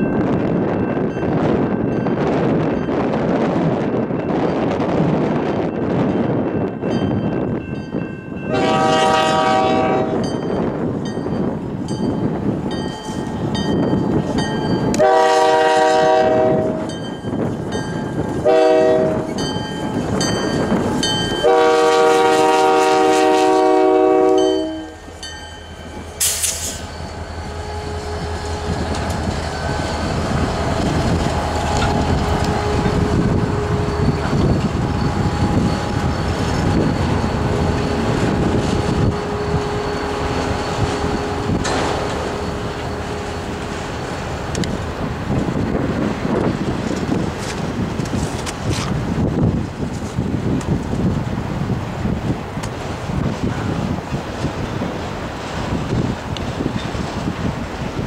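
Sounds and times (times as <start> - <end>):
crossing bell ringing: 0.0 - 3.2, 5.6 - 46.0
locomotive air horn blasts: 8.5 - 10.3, 14.9 - 16.9, 18.4 - 19.4, 21.4 - 25.1, 31.6 - 34.3
locomotives rumbling past: 8.5 - 58.0
brief hiss: 26.2 - 26.9
train wheel clatter: 28.2 - 51.3.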